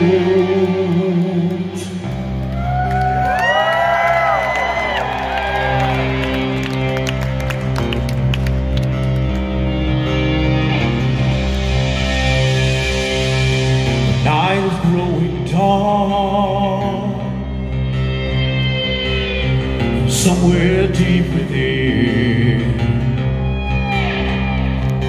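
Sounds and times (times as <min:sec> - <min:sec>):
man singing with vibrato: 0:00.0 - 0:02.3, 0:14.1 - 0:17.7, 0:19.8 - 0:23.6
live rock band playing: 0:00.0 - 0:25.0.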